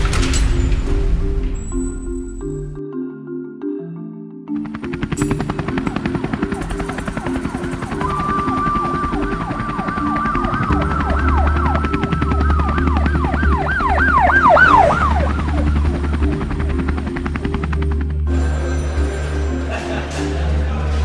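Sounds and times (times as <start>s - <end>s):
emergency siren wailing: 5.2s - 18.8s.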